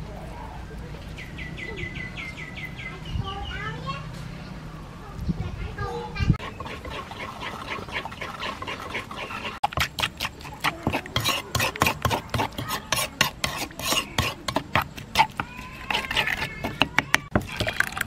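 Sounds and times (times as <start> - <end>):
metal spoon scraping mortar: 6.4 - 18.0.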